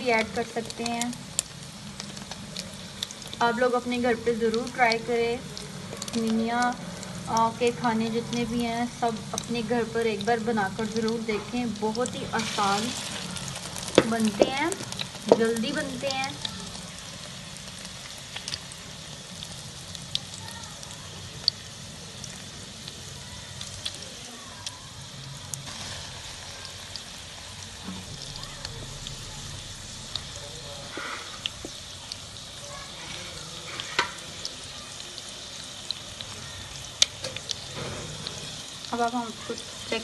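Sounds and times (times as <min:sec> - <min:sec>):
food sizzling in oil: 0:00.0 - 0:40.0
oil spitting pops: 0:27.8 - 0:34.6.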